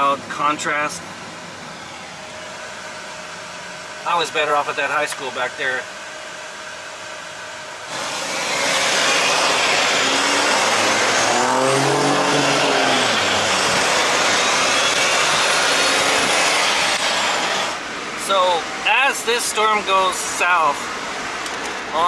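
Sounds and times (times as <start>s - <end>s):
car fan hum: 0.0s - 22.0s
road traffic noise: 0.0s - 22.0s
passing vehicle engine: 7.9s - 17.9s.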